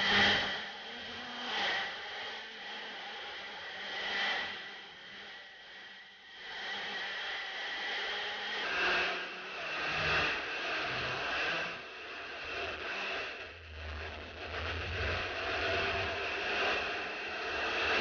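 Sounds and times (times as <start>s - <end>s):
go-kart engine running: 10.2s - 18.0s.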